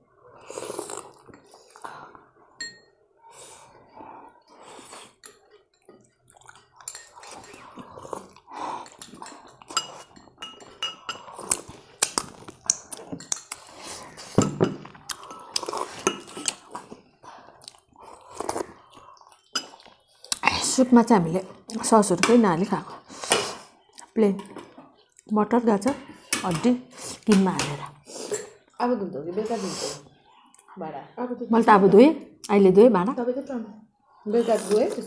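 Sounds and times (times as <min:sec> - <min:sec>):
chewing: 0:00.4 - 0:02.6, 0:04.4 - 0:20.7
ceramic spoon clinking on dishware: 0:09.0 - 0:11.2.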